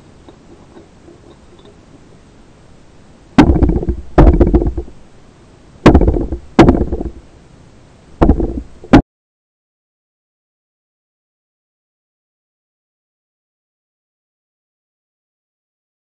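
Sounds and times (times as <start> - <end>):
sharp underwater knocks: 3.4 - 4.9, 5.8 - 7.2, 8.2 - 9.0.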